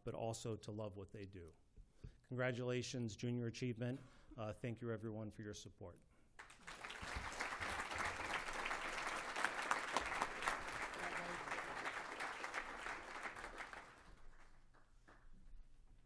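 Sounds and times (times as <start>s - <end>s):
audience applauding: 6.4s - 15.2s.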